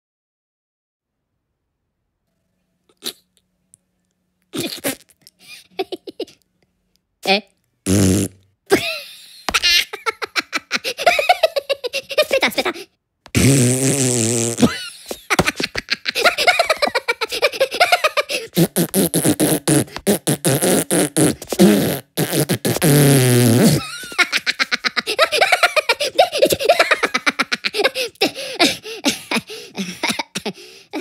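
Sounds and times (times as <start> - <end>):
cartoon fart noises: 2.9 - 3.3, 4.5 - 5.3, 7.8 - 8.4, 13.3 - 15.6, 17.9 - 24.0
high-pitched cartoon giggling: 4.6 - 6.4, 8.7 - 12.9, 14.6 - 18.6, 23.8 - 31.0.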